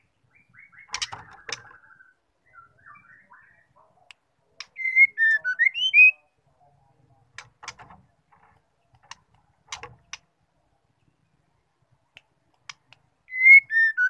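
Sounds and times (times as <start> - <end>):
bird singing whistled notes: 0.3 - 3.7, 4.7 - 6.3, 13.3 - 14.0
sharp clicks: 7.3 - 10.3, 12.1 - 13.1.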